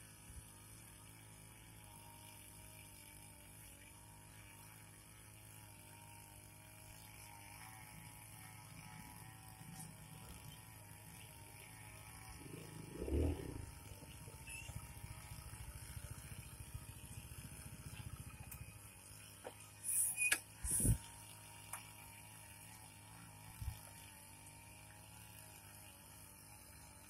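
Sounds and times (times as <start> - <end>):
brush cutter engines running: 0.0 - 27.0.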